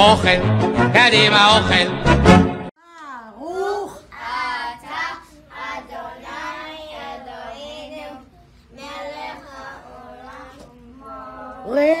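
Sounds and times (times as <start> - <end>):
young children singing together: 4.0 - 12.0.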